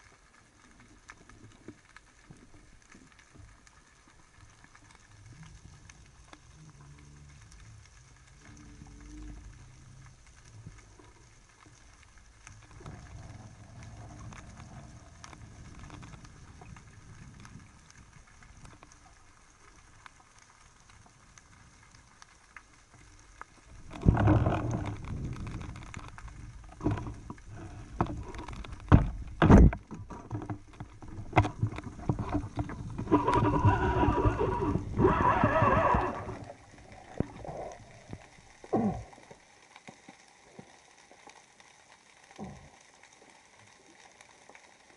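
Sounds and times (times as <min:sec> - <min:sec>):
faint low underwater rumble: 0:00.0 - 0:44.9
rush of moving water: 0:22.9 - 0:44.9.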